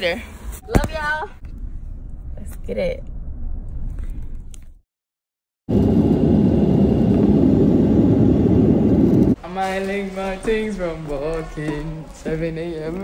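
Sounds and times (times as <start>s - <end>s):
airliner cabin roar: 5.7s - 9.4s.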